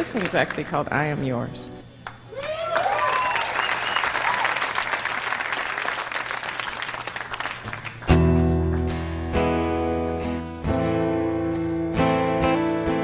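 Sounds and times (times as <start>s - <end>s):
audience applauding: 2.1s - 8.2s
whoops and whistles: 2.3s - 4.6s.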